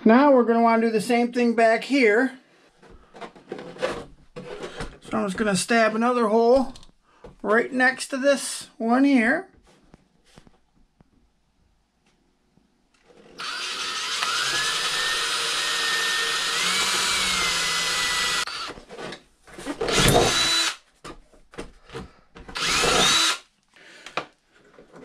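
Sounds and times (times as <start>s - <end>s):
cordless drill whine: 13.2s - 18.8s, 19.8s - 20.8s, 22.5s - 23.4s.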